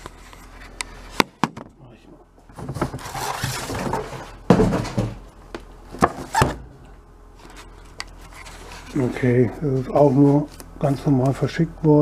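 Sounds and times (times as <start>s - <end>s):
cardboard and plastic rustling: 2.4s - 5.3s.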